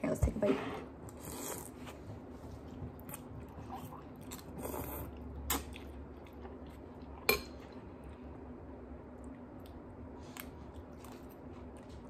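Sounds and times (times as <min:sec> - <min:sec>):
slurping and chewing noodles: 0:01.1 - 0:02.0, 0:03.0 - 0:07.3.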